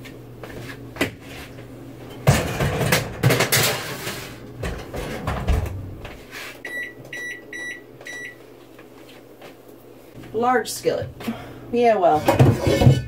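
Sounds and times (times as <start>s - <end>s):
metal baking sheet clattering: 2.3s - 5.4s, 12.0s - 13.0s.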